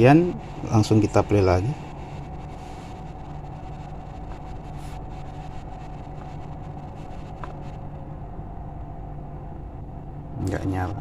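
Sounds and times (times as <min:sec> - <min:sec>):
low electrical hum: 0:00.0 - 0:11.0.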